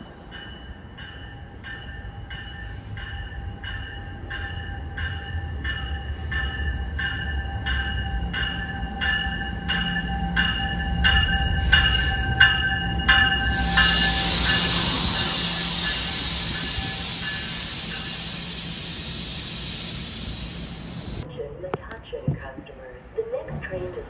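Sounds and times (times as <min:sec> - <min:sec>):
train warning bell ringing: 0:00.0 - 0:21.2
rumble of approaching train: 0:00.0 - 0:24.0
hiss of air: 0:13.5 - 0:21.2.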